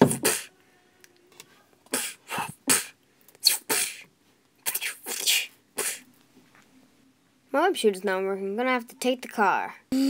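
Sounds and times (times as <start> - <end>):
person making hissing mouth sounds: 0.0 - 0.6, 1.9 - 6.1.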